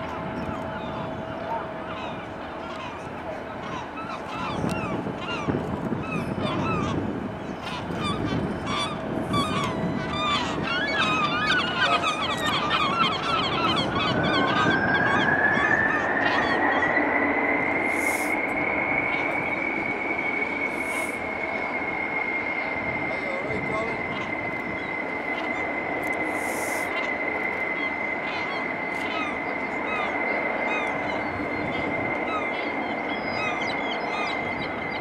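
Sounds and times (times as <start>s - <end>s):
gulls calling: 0.0s - 35.0s
rising whistle-like tone: 8.5s - 35.0s.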